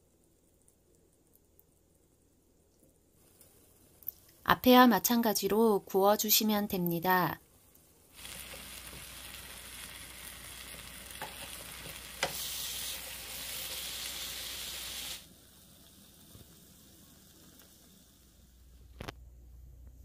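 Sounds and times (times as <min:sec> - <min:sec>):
faint hiss: 0:00.0 - 0:20.0
batter sizzling in oil: 0:07.5 - 0:19.0.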